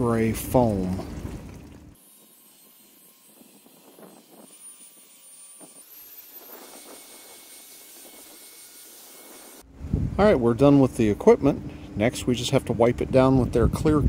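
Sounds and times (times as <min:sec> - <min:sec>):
faint cordless drill whir: 0:02.0 - 0:09.6.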